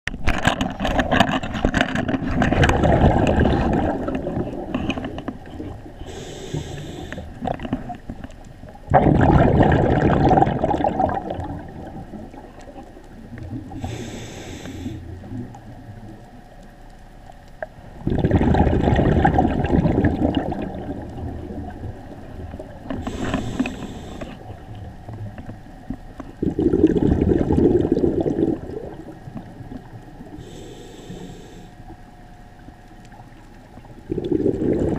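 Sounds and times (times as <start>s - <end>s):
exhaled air bubbling: 0.8s - 16.5s, 17.1s - 34.9s
regulator inhalation hiss: 6.0s - 7.4s, 13.7s - 15.2s, 23.0s - 24.4s, 30.4s - 31.9s.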